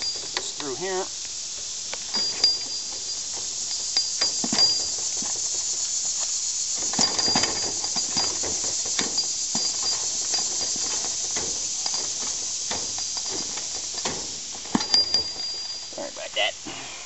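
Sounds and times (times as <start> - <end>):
steady high hiss: 0.0 - 17.0.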